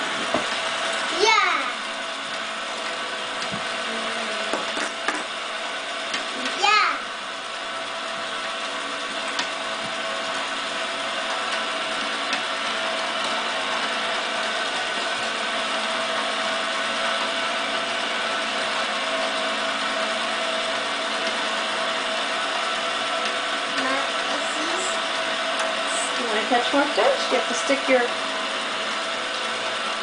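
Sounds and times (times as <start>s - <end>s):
toy motor and gears whirring: 21.2s - 28.1s.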